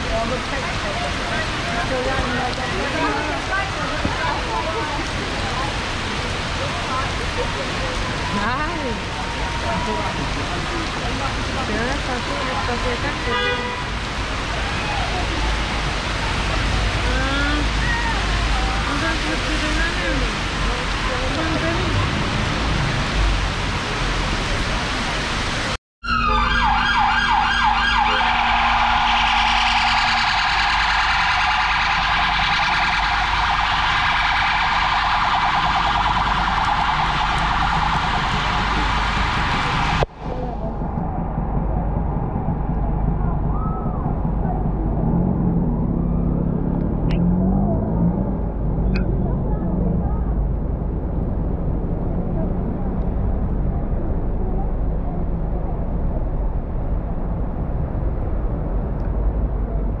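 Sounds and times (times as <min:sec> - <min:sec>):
traffic rumble: 0:00.0 - 1:00.0
warbling siren: 0:26.0 - 0:48.0.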